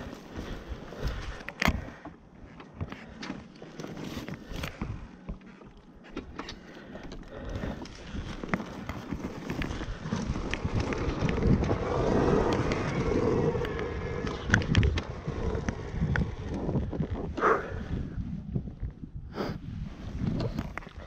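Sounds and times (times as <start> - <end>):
dirt bike engine: 6.2 - 17.8
wind buffeting microphone: 7.0 - 21.0.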